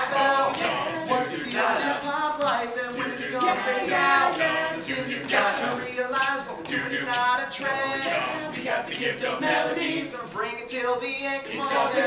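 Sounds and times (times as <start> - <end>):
young men singing a cappella: 0.0 - 12.0.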